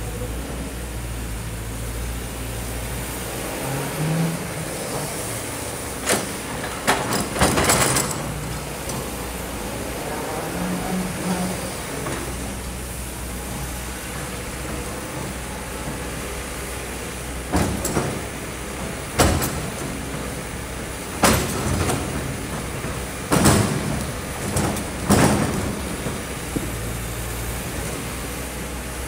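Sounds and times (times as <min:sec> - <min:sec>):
excavator diesel engine running: 0:00.0 - 0:29.0
excavator bucket crashing: 0:06.0 - 0:09.2, 0:17.2 - 0:27.0.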